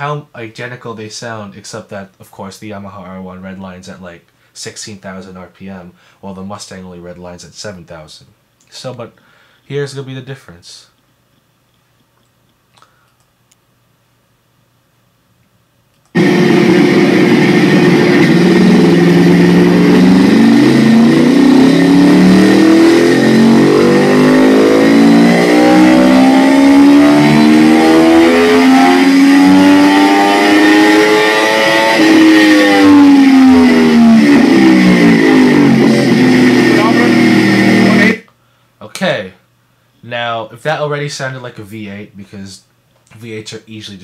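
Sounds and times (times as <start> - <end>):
steady high whine: 16.0 - 38.3
motorcycle engine revving: 16.2 - 38.2.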